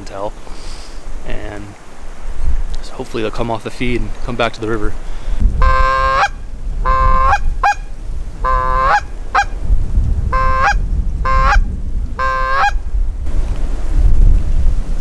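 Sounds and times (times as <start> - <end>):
wind rumbling on microphone: 0.0 - 15.0
goose call honks: 5.6 - 9.6, 10.3 - 11.6, 12.2 - 12.8.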